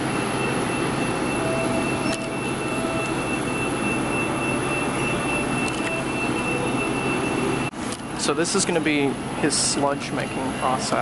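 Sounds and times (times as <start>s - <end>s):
thin high whine: 0.0s - 8.4s
drink machines humming and hissing: 0.0s - 11.0s.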